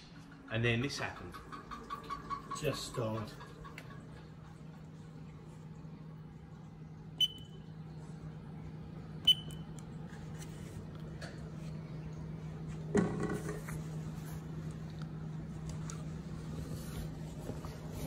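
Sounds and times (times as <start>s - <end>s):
keypad beeping: 7.2s - 7.6s, 9.3s - 9.7s.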